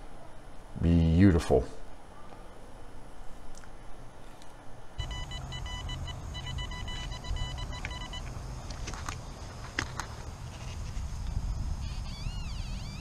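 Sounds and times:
metal detector tone: 5.0s - 8.3s, 11.8s - 13.0s.

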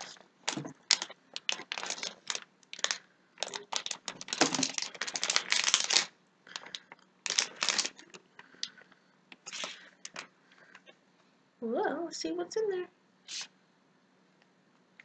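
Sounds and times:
plastic wrapper crinkling: 0.0s - 10.9s.

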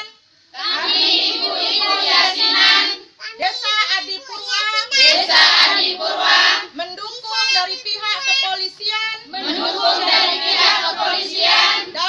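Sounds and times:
women chanting in unison: 0.5s - 3.1s, 5.1s - 6.8s, 9.3s - 12.0s.

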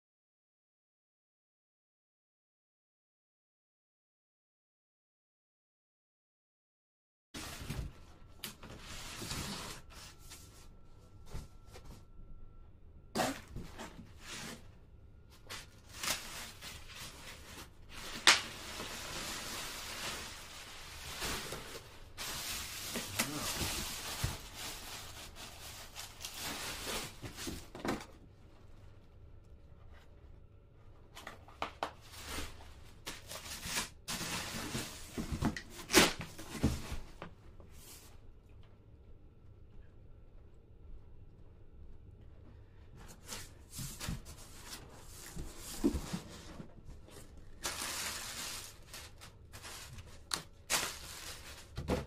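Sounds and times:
foam sheets rustling and crinkling: 15.3s - 28.1s, 31.7s - 38.1s, 43.1s - 52.0s.

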